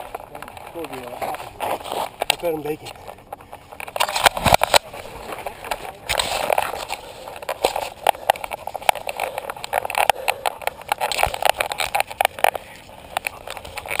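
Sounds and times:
camera handling knocks and rubbing: 3.4 - 12.5.

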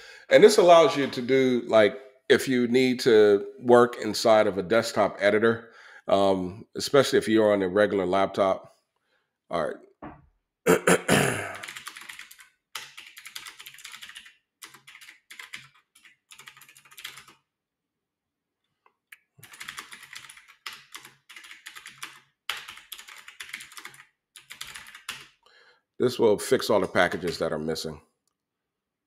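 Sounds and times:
typing on computer keyboard: 11.6 - 17.4, 19.4 - 25.4.

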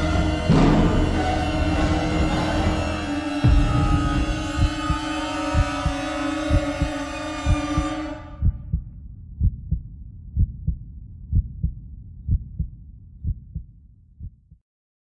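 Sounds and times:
low musical chord: 0.0 - 8.4
heartbeat thumps: 0.0 - 14.6.

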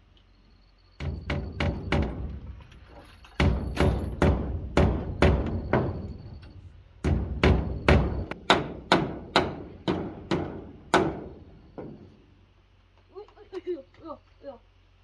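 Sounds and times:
heavy knocks: 1.0 - 2.7, 3.3 - 12.1.

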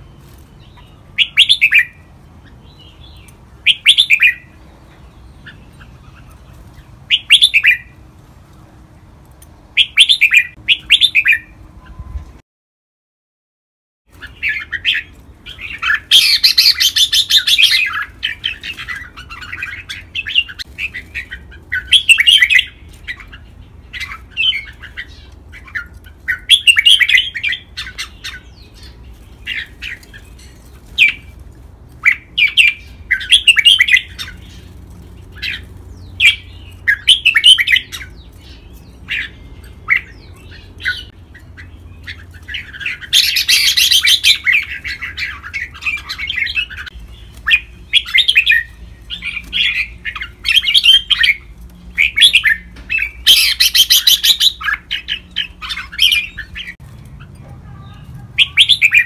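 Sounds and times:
bird singing whistled phrases: 1.2 - 2.0.

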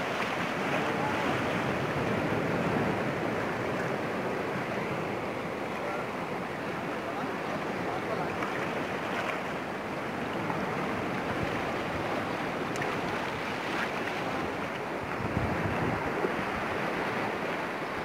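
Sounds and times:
sea surf washing over rocks: 0.0 - 18.0
wind buffeting microphone: 10.7 - 18.0.

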